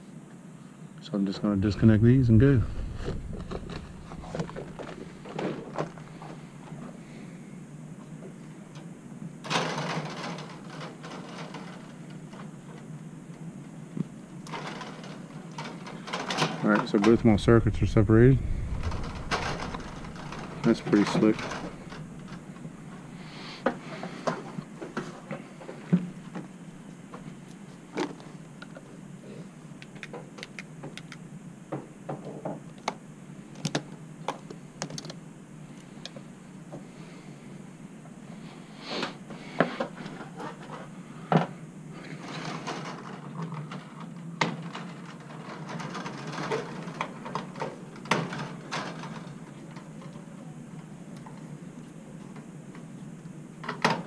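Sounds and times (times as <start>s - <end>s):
steady low hum: 0.5s - 9.4s, 15.3s - 30.0s.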